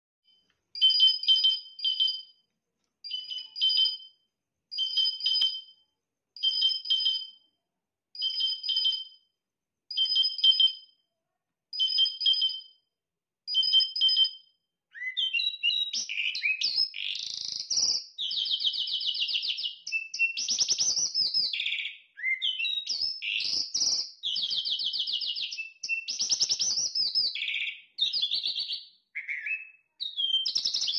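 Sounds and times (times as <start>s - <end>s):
songbird two-toned call: 3.0s - 4.2s, 13.5s - 30.9s
songbird warbling song: 14.9s - 30.9s.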